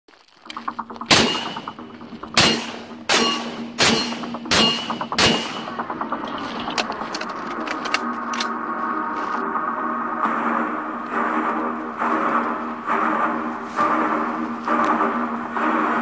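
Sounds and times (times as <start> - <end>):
droning music: 0.5 - 16.0
rifle shots: 2.3 - 5.8.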